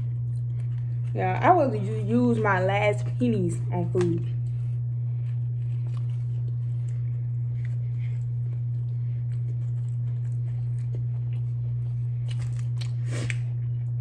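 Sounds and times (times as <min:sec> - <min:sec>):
soft chewing: 0:00.0 - 0:01.2, 0:04.1 - 0:14.0
steady low hum: 0:00.0 - 0:14.0.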